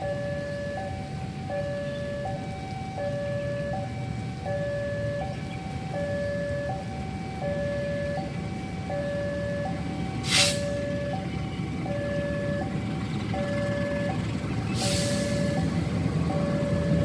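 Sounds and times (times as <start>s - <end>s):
two-tone level crossing alarm: 0.0s - 14.2s, 14.8s - 17.0s
brief loud hiss: 10.3s - 10.6s.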